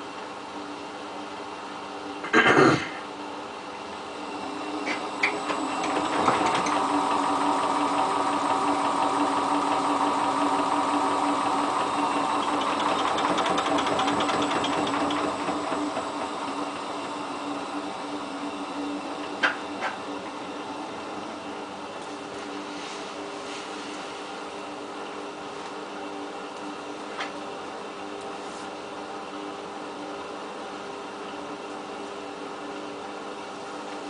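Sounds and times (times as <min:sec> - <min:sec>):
washing machine spinning: 0:03.4 - 0:28.2.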